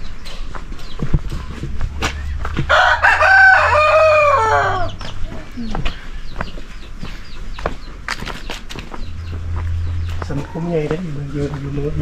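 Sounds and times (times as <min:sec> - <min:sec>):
rooster crowing: 0:02.5 - 0:05.0.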